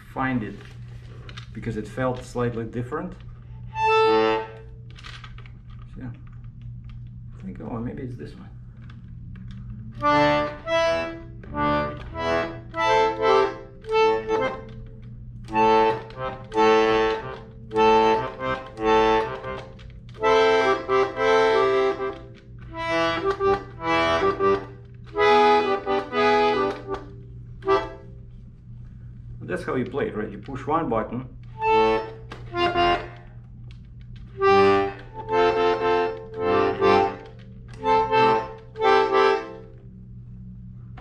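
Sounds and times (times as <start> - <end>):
button accordion chords: 3.7 - 4.8, 9.9 - 28.2, 31.4 - 39.9.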